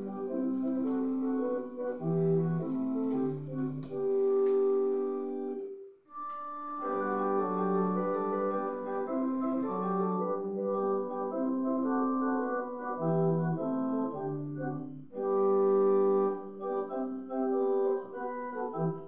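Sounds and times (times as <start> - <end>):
pipe organ chords: 0.0 - 19.0.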